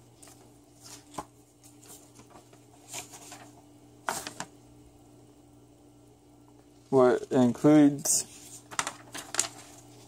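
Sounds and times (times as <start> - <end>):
faint steady hum: 0.0 - 10.0
paper rustling: 0.2 - 4.5, 8.0 - 10.0.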